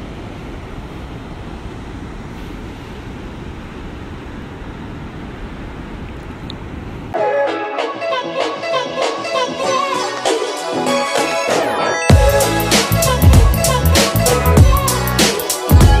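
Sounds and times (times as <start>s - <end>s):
ocean surf breaking: 0.0s - 7.1s
music: 7.2s - 16.0s.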